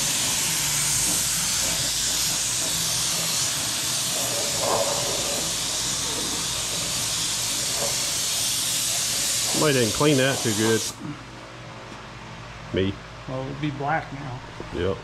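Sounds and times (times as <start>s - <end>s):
paint spray gun hissing: 0.0s - 11.0s.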